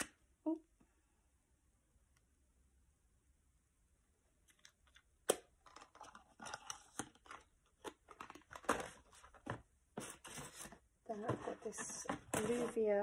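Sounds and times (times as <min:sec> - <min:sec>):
packaging crinkling and rustling: 0:05.6 - 0:12.8.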